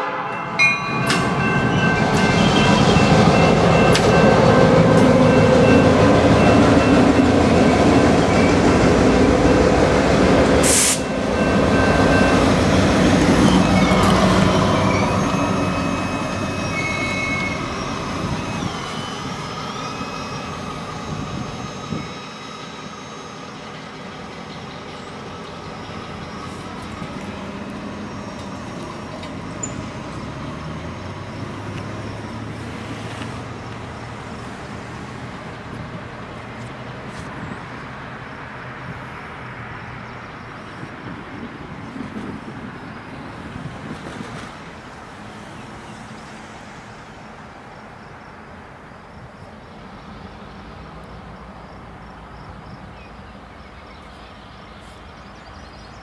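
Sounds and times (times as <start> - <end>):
diesel locomotive engine running: 0.0 - 38.2
train wheels rolling on rails: 0.5 - 47.9.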